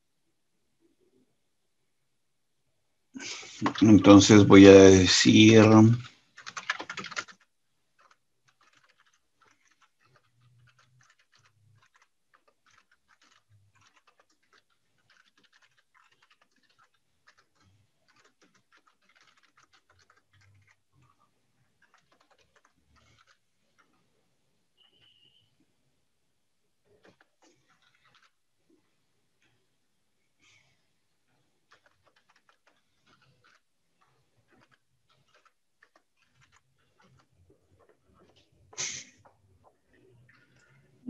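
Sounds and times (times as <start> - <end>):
computer keyboard typing: 3.2 - 24.1, 26.9 - 28.4, 31.3 - 38.5.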